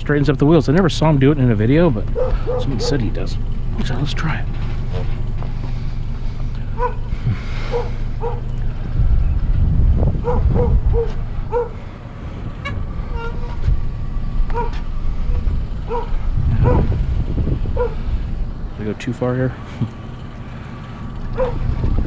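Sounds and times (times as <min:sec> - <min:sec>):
heavy low rumble: 0:00.0 - 0:22.0
vehicle engine idling: 0:00.0 - 0:22.0
dog barking: 0:02.2 - 0:03.1, 0:06.8 - 0:07.1, 0:07.7 - 0:08.5, 0:10.2 - 0:11.8, 0:14.5 - 0:14.8, 0:15.8 - 0:16.9, 0:17.8 - 0:18.0, 0:21.4 - 0:21.7.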